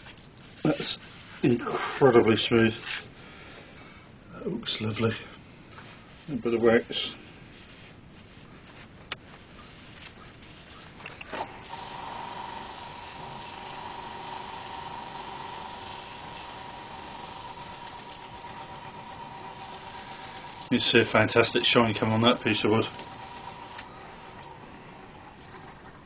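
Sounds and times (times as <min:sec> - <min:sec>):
cloth hissing on spinning wood: 0:09.6 - 0:26.0
wood lathe whining: 0:11.3 - 0:26.0.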